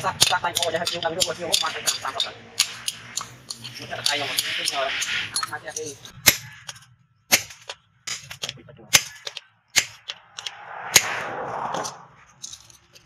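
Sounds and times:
hammer striking chisel on anvil: 0:00.0 - 0:04.8, 0:05.4 - 0:11.1
rush of noise: 0:01.6 - 0:06.1, 0:10.2 - 0:12.8.

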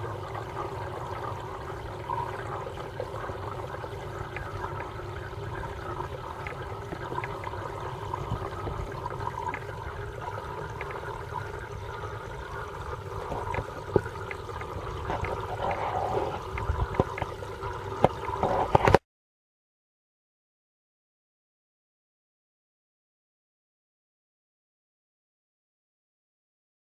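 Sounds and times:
water trickling in aquarium: 0:00.0 - 0:19.0.

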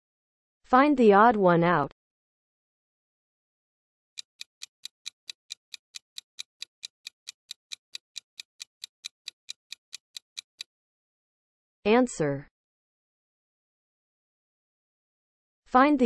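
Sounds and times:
clock ticking: 0:04.2 - 0:10.7.

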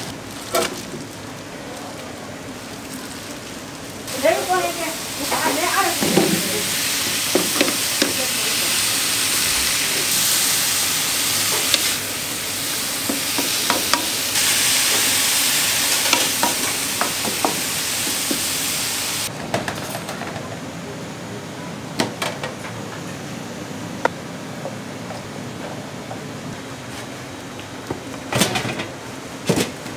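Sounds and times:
food sizzling loudly: 0:04.1 - 0:19.3.

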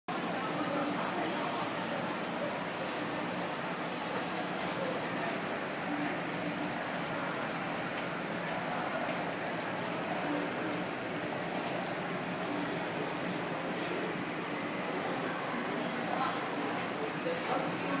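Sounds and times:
hot pot sizzling: 0:00.3 - 0:18.0.

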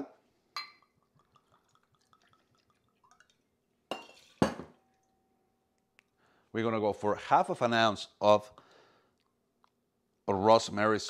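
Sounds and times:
liquid trickling: 0:00.8 - 0:03.5
glass and metal clinks: 0:03.9 - 0:05.2.

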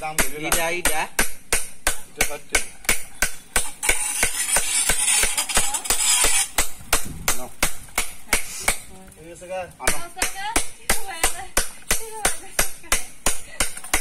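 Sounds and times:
hiss: 0:08.0 - 0:08.9.

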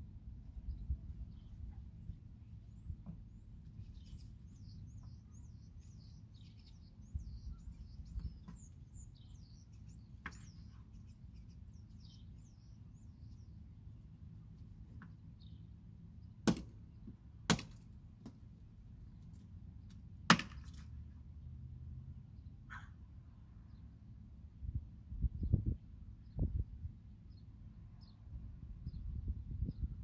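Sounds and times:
birds chirping: 0:00.5 - 0:17.1.

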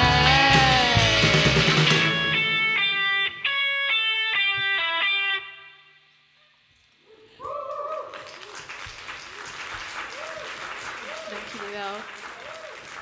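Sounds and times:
person shouting: 0:00.0 - 0:02.0
electric guitar picked notes: 0:00.0 - 0:06.2
clapping: 0:07.4 - 0:13.0.

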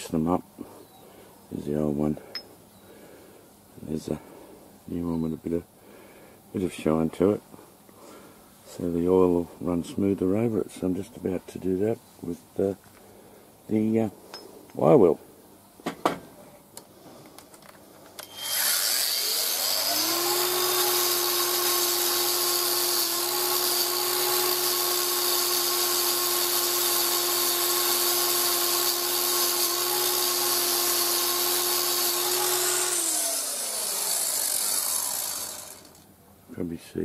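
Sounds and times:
angle grinder motor whine: 0:18.2 - 0:36.0
wire wheel brushing metal: 0:18.3 - 0:36.0.

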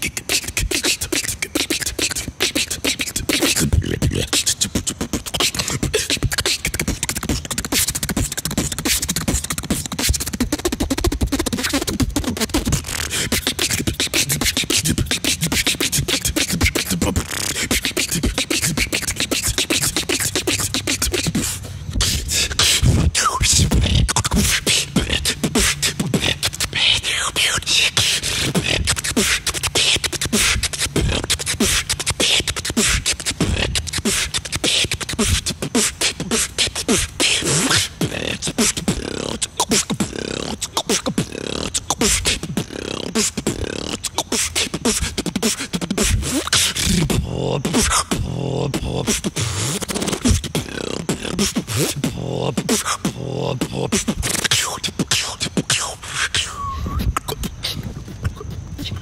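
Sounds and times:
person beatboxing: 0:00.0 - 0:59.0.

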